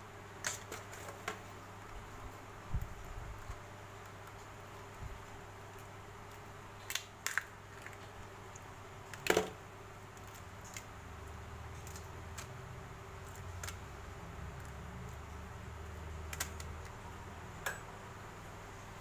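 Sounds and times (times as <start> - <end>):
low steady hum: 0.0 - 19.0
crab shell cracking: 6.2 - 9.5, 10.1 - 11.0, 11.8 - 12.6, 13.2 - 13.9, 16.2 - 17.0.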